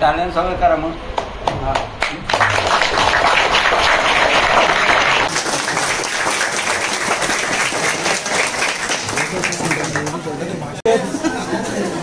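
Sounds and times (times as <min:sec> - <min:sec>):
crowd applauding: 0:01.4 - 0:10.4.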